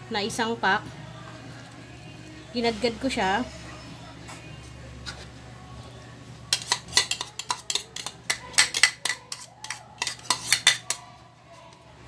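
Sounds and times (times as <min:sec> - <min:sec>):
metal spoon clinking on pan: 0:06.5 - 0:11.0.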